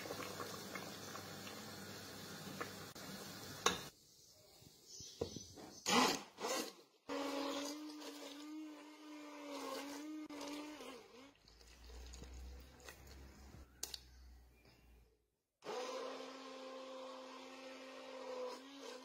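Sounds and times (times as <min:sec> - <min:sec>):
soup bubbling in a pot: 0:00.0 - 0:03.7
immersion blender humming: 0:15.6 - 0:19.0.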